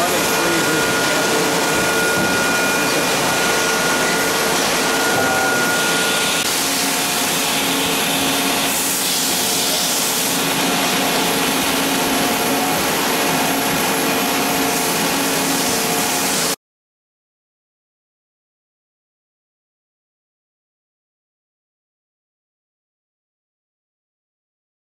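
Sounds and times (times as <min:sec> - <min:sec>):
machinery whirring hiss: 0:00.0 - 0:16.6.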